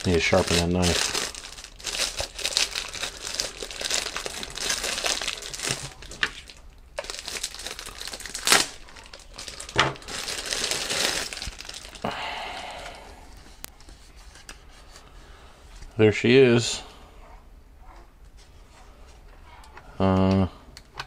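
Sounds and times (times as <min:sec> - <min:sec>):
plastic wrapping crinkling: 0:00.0 - 0:15.0.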